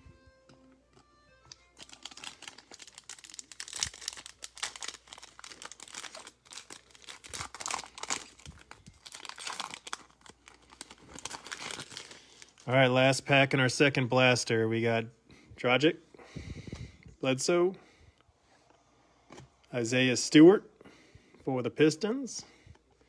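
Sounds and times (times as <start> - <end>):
foil pack crinkling and tearing: 1.7 - 12.7.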